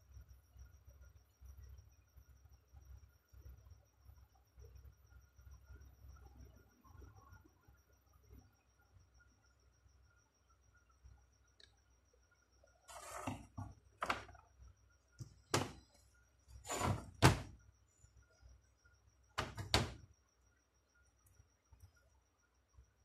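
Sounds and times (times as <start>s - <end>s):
scraping knock: 16.6s - 17.5s.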